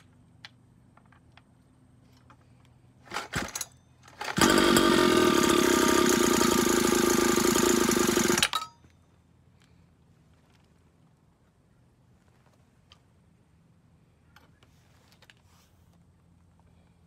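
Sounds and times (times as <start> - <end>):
recoil starter rasp: 4.1 - 8.6
small two-stroke engine running: 4.1 - 8.6.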